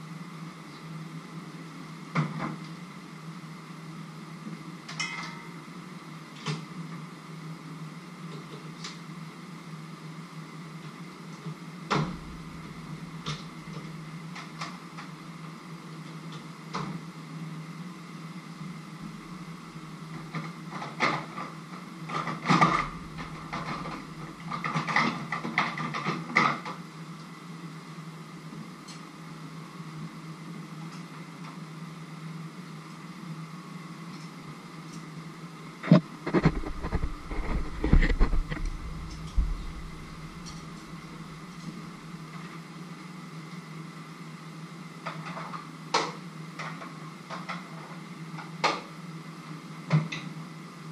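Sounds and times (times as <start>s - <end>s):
steady low hum: 11.9s - 14.3s, 22.6s - 24.6s, 35.7s - 42.3s
heavy deep thumps: 12.0s - 13.2s, 36.3s - 41.5s.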